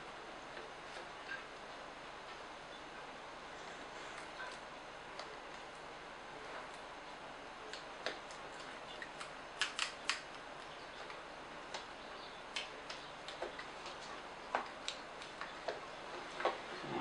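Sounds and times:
sharp clicks: 9.1 - 10.3.

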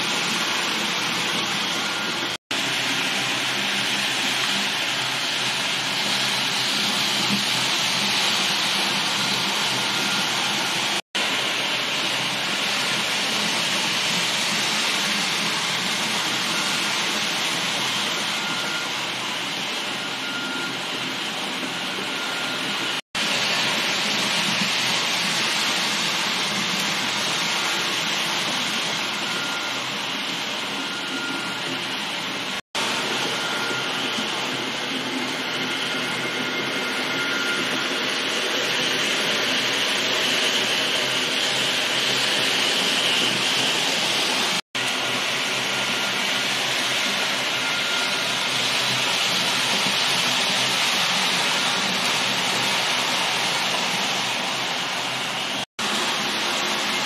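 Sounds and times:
model train running on track: 0.0 - 57.0.

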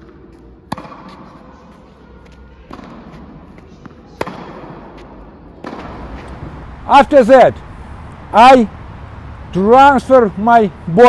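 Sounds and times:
tennis ball pops with echo: 0.7 - 1.3, 2.7 - 3.4, 4.2 - 6.4.

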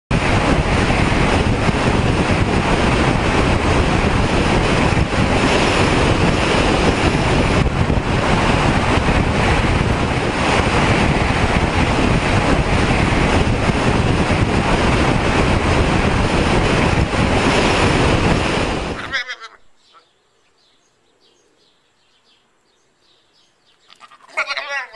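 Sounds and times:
wind rushing over microphone: 0.1 - 19.8.

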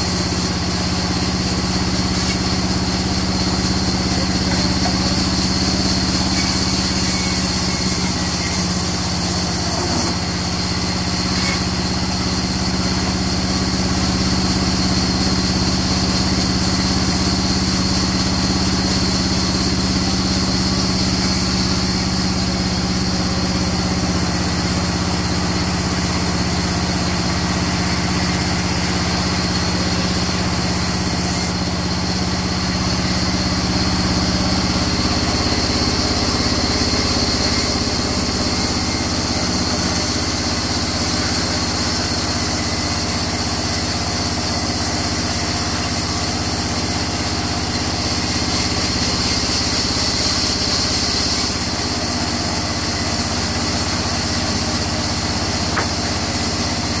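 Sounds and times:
band saw ripping wood: 1.4 - 11.9, 48.6 - 57.0.

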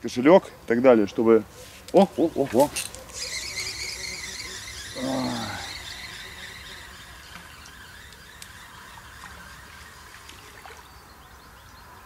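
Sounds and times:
fishing reel clicks: 2.7 - 10.4.

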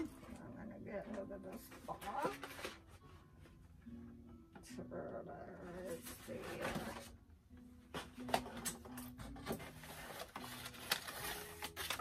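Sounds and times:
cardboard packaging rustling: 1.7 - 3.0, 8.0 - 12.0.

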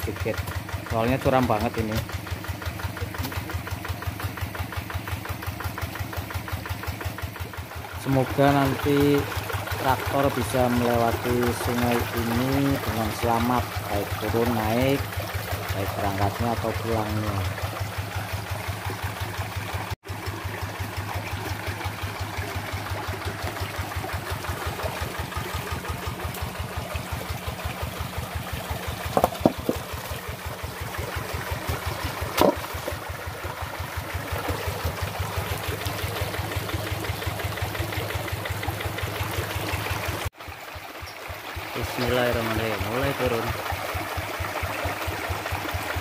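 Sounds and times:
diesel engine idling: 0.0 - 46.0
short sharp knocks: 29.1 - 29.8.

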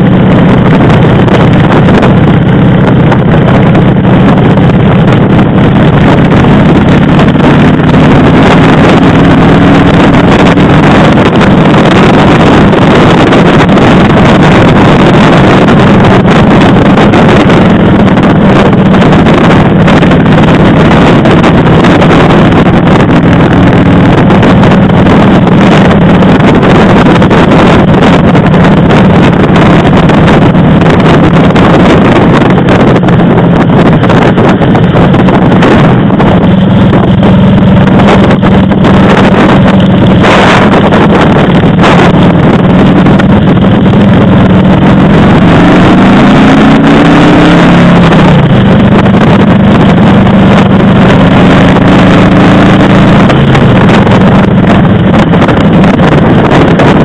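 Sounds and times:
motorcycle engine running: 0.0 - 57.0
wind noise on microphone: 0.0 - 57.0.

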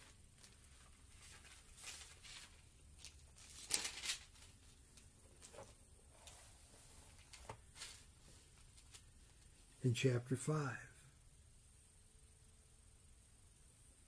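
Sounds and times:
book pages turning and rustling: 0.0 - 9.6.

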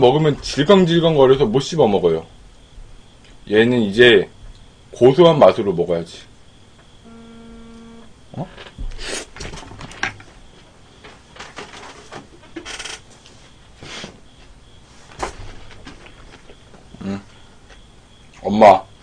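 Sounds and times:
steady tone: 7.0 - 8.5.

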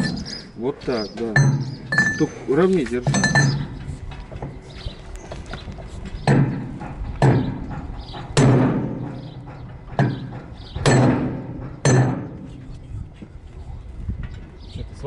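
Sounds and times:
hammer striking steel pipe: 10.0 - 12.5.

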